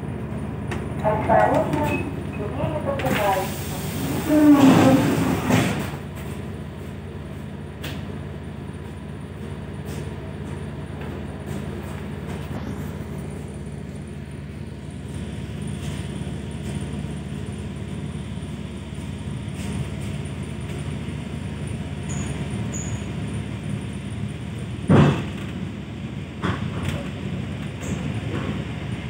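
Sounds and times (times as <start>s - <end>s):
electric train hum and rumble: 0.0s - 29.0s.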